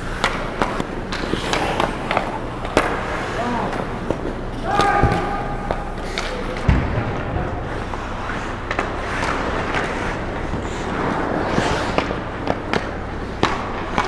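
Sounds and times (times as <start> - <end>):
skates scraping ice: 0.0 - 6.7, 7.6 - 14.0
arena rumble: 0.0 - 14.0
hockey sticks and puck clacking: 0.0 - 14.0
heavy thump: 6.6 - 7.6.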